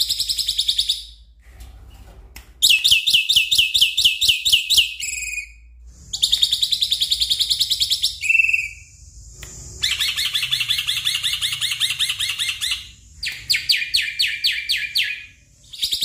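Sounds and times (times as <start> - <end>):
bird singing: 6.2 - 8.9, 9.8 - 16.0.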